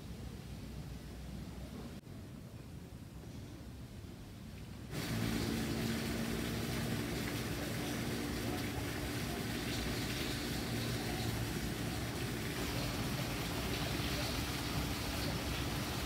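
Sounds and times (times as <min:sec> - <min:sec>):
hiss: 0:04.9 - 0:16.0
machine hum: 0:04.9 - 0:16.0.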